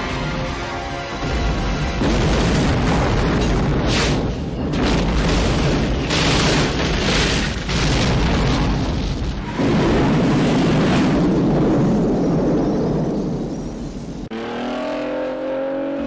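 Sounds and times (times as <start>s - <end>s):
heavy explosion booms: 2.0s - 3.9s, 4.6s - 13.4s.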